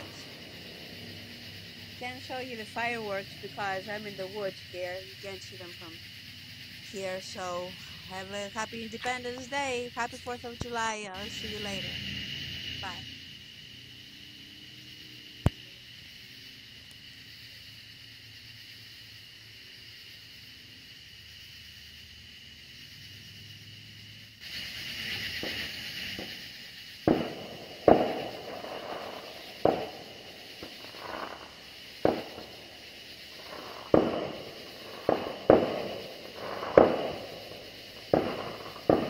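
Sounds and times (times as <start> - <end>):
fireworks bangs: 0.0 - 13.7, 24.4 - 39.0
cicada chorus: 0.0 - 39.0.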